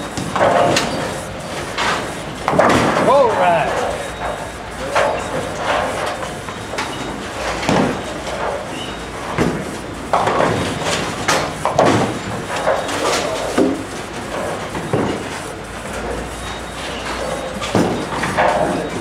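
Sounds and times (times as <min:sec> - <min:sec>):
bowling pins clattering: 0:00.0 - 0:04.4.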